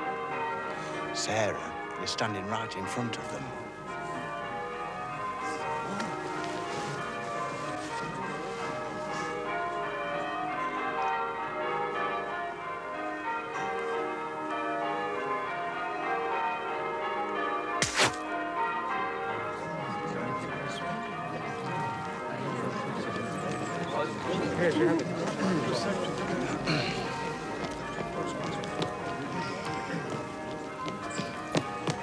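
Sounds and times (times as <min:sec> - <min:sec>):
church bells pealing: 0:00.0 - 0:32.0
brief sharp noise: 0:17.8 - 0:18.2.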